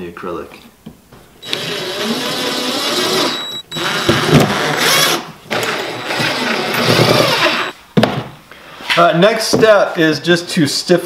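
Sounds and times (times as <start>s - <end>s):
cordless drill driving screws: 1.4s - 7.7s.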